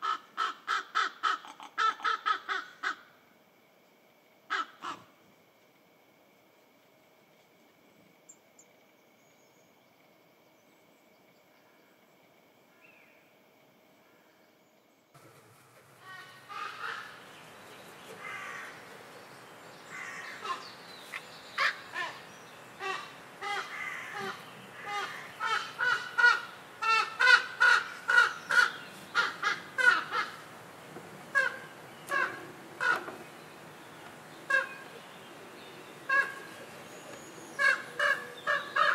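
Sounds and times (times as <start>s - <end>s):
raven calling harshly: 0.0s - 3.1s, 4.5s - 5.1s, 16.0s - 17.3s, 18.2s - 18.9s, 19.9s - 20.7s, 21.6s - 30.5s, 31.3s - 33.2s, 34.5s - 34.8s, 36.1s - 36.5s, 37.6s - 38.9s.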